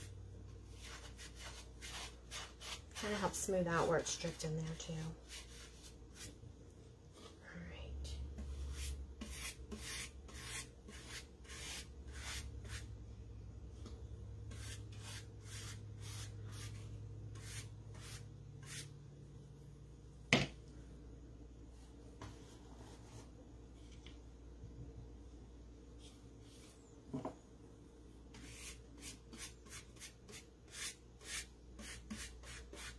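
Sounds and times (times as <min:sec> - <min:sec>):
paintbrush strokes: 0:00.7 - 0:06.4.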